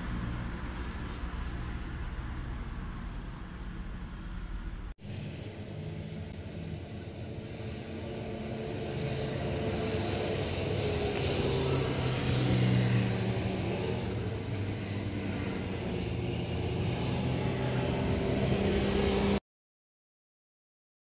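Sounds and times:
motor humming steadily: 0:05.0 - 0:19.4.

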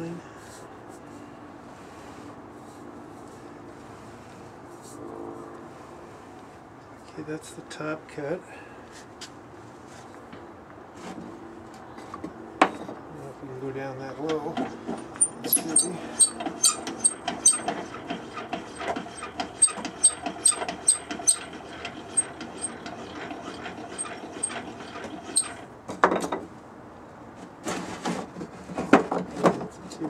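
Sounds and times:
scraping knocks: 0:14.5 - 0:26.4
canister squeaking and scraping on board: 0:15.2 - 0:25.7.

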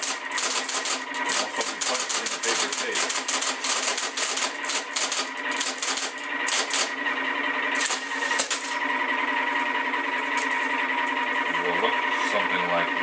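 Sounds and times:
typewriter key strokes: 0:00.0 - 0:06.9
tape punch clattering: 0:00.0 - 0:07.0, 0:07.8 - 0:08.8
machine motor humming: 0:00.0 - 0:13.0.

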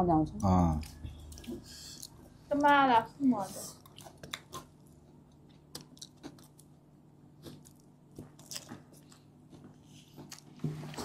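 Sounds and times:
crunchy chewing: 0:03.7 - 0:11.0.

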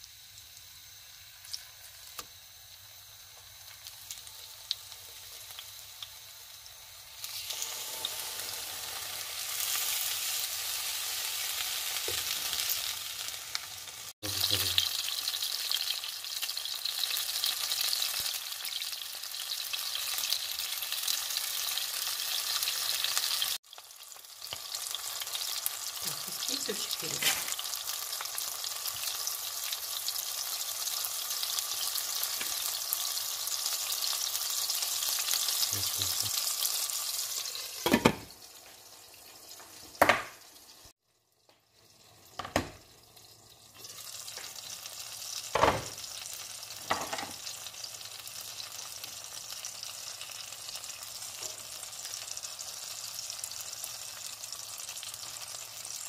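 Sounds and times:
tomato sizzling in frying pan: 0:00.0 - 0:56.0
glass lid knocking on pan: 0:37.8 - 0:38.2.

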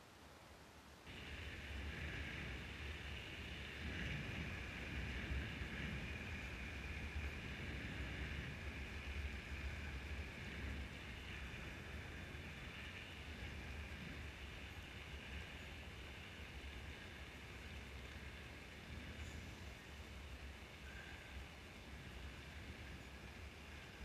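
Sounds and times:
tyres hissing on tarmac: 0:01.0 - 0:24.0
wind rumble on microphone: 0:01.1 - 0:24.0.

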